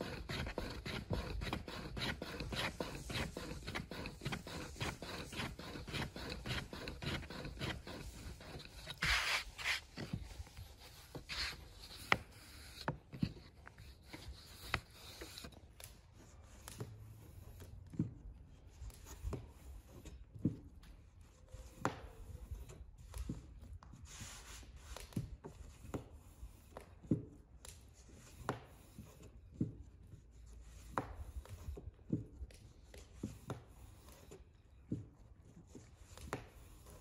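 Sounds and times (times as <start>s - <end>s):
rolling pin rubbing over dough: 0.0s - 15.6s.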